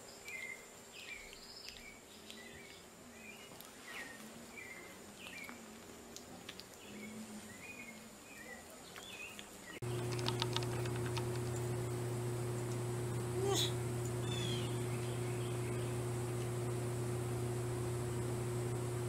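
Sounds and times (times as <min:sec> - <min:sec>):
soft chirping calls: 0:00.0 - 0:05.6, 0:13.4 - 0:16.7
clicks: 0:09.8 - 0:13.3
steady low hum: 0:09.8 - 0:19.0.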